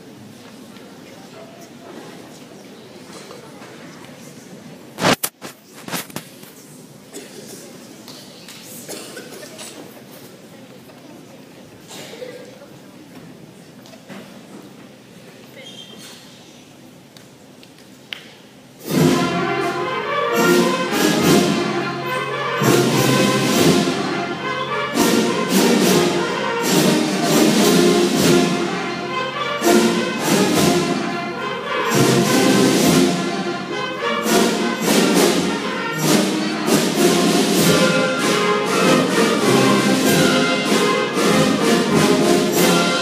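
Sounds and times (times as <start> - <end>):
band playing: 18.8 - 43.0.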